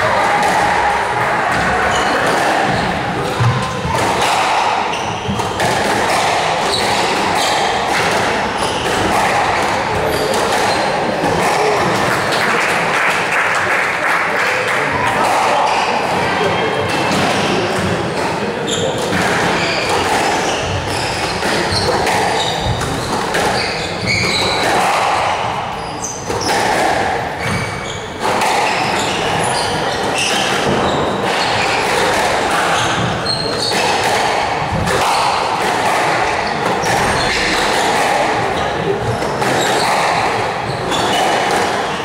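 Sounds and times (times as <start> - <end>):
squash ball smacking rackets and walls: 0.0 - 13.2, 15.1 - 42.0
murmur of spectators: 0.0 - 42.0
shoe squeaks on court floor: 4.9 - 7.8, 18.6 - 24.9, 25.6 - 26.7, 27.4 - 32.0, 32.6 - 34.1, 35.0 - 42.0.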